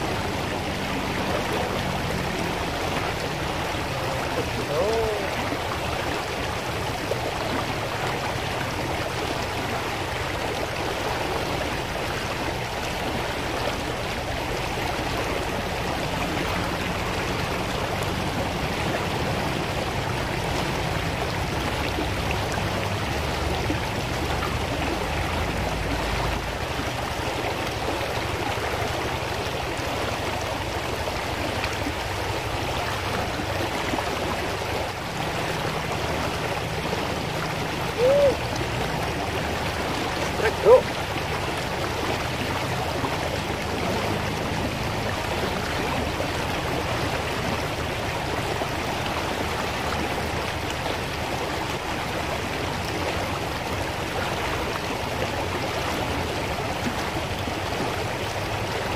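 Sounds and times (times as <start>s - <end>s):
river rushing over stones: 0.0s - 58.9s.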